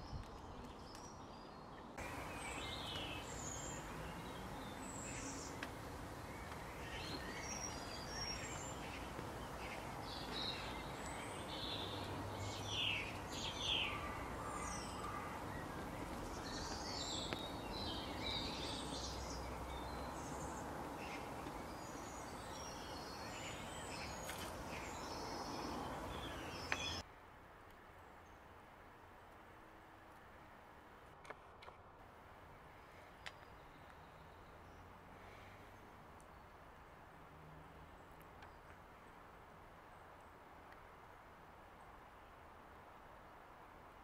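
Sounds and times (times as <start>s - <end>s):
birds chirping and calling: 0.3s - 27.0s.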